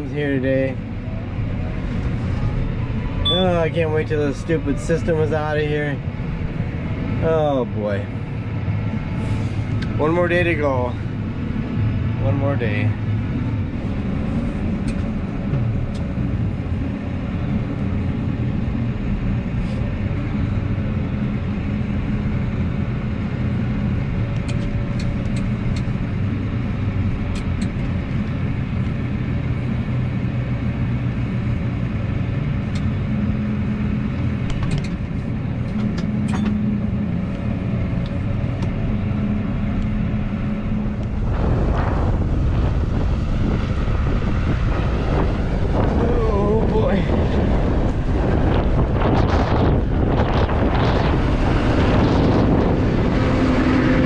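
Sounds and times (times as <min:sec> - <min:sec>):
diesel engine running: 0:00.0 - 0:54.0
wind buffeting microphone: 0:30.6 - 0:54.0.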